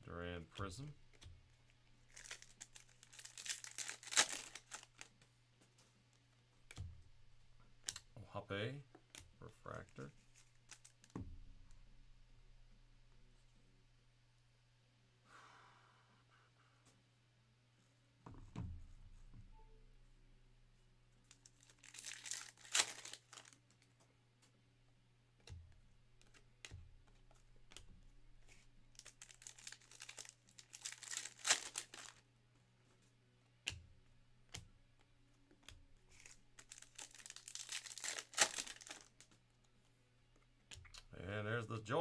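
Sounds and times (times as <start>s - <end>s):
foil wrappers crinkling and tearing: 2.0s - 5.1s, 9.9s - 11.1s, 21.3s - 23.8s, 28.4s - 32.2s, 36.1s - 39.3s.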